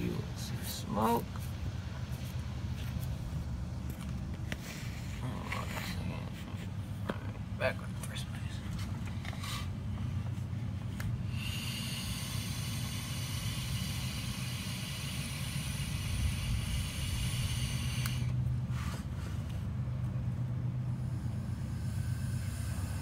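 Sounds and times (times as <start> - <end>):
low hum: 0.0 - 23.0
air hissing: 11.0 - 19.5, 20.9 - 23.0.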